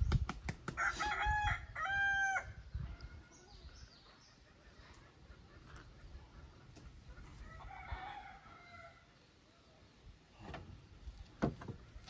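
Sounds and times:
distant rooster crowing: 0.8 - 3.3, 7.4 - 9.1.

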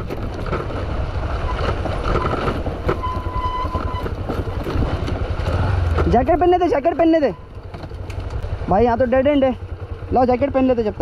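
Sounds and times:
wind rumble on microphone: 0.0 - 6.3
motorcycle engine running: 0.0 - 11.0.

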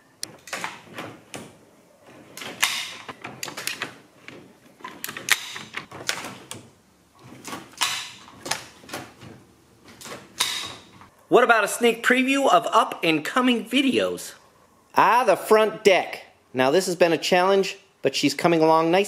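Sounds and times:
mechanical clicks and clunks: 0.2 - 11.1.

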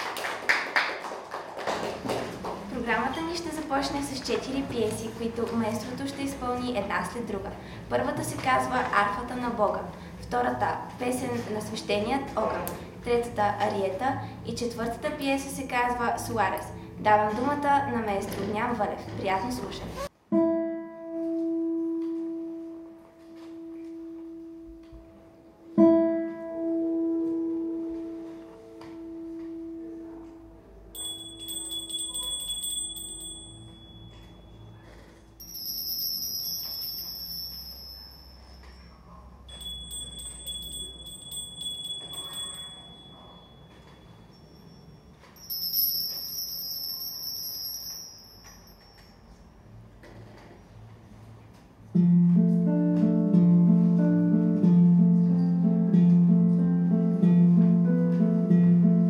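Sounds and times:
small high chimes tinkling: 31.0 - 49.6
bell-like tone ringing: 31.0 - 49.7.

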